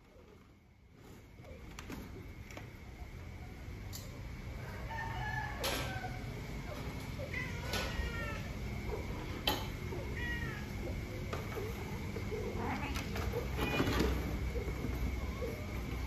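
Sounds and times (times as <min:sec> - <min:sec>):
cat meowing: 0:07.2 - 0:08.5, 0:10.0 - 0:10.8.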